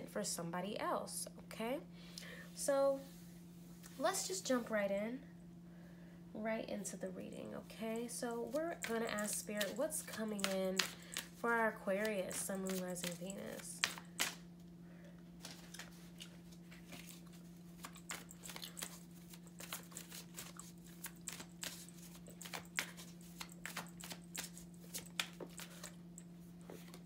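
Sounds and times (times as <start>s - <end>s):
cards being shuffled: 8.5s - 14.4s, 15.4s - 26.0s.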